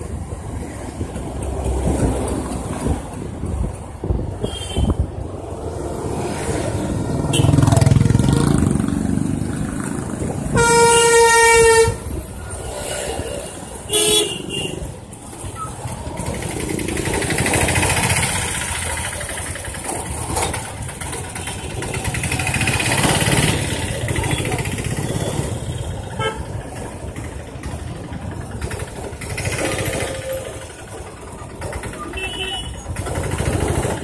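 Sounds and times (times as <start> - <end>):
wind: 0.0 - 34.0
vehicle horn blaring: 10.5 - 12.1, 13.9 - 14.8.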